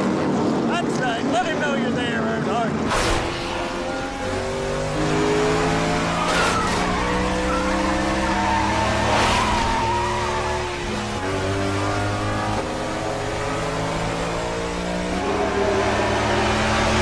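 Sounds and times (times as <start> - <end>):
race car engines at full throttle: 0.0 - 17.0
tires squealing: 5.6 - 13.7.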